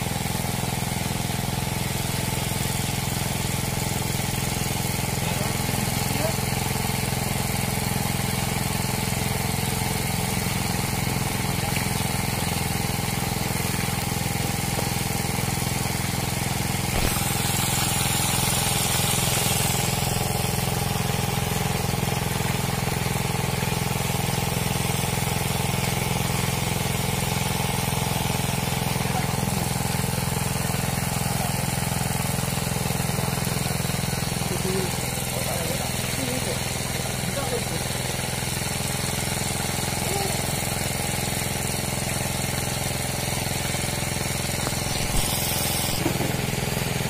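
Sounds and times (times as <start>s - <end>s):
pump motor humming: 0.0s - 47.0s
hiss: 16.8s - 23.2s, 43.7s - 47.0s.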